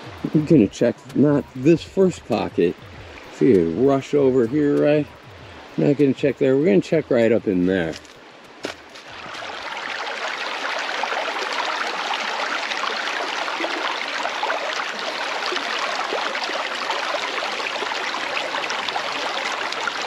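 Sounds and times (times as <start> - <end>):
river rippling over rocks: 0.0 - 20.0
small water splashes: 7.8 - 20.0.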